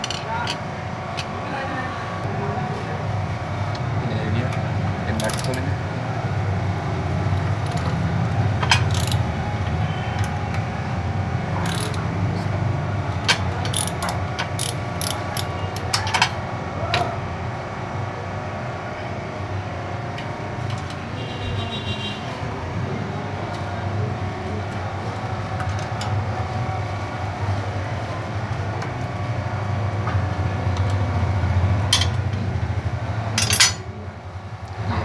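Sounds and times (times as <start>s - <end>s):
socket wrench clicking: 5.2s - 5.6s, 7.6s - 7.9s, 8.6s - 9.2s, 11.6s - 12.0s, 13.3s - 16.3s.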